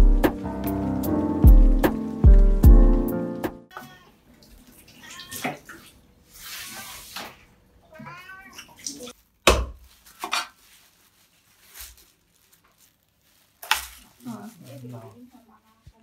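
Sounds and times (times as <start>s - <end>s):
cat meowing: 3.7s - 4.2s, 5.0s - 5.6s, 7.9s - 9.1s.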